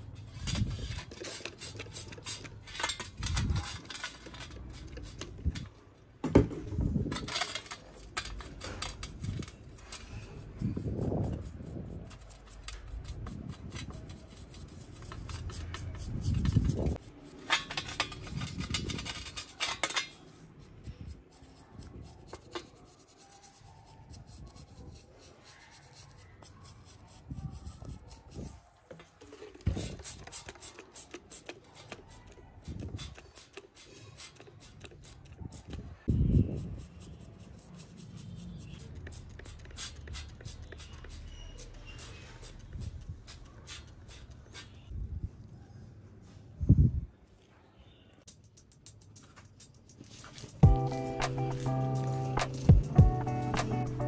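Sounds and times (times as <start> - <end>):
brush scrubbing metal: 0.0 - 5.7, 7.0 - 28.6, 29.2 - 44.8.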